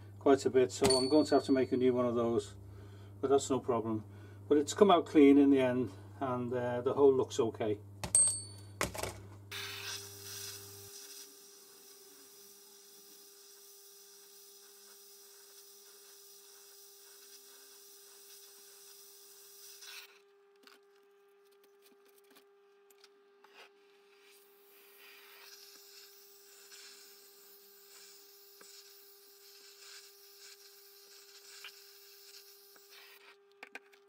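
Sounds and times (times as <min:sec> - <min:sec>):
blowtorch hissing: 0:09.5 - 0:20.2, 0:24.2 - 0:33.2.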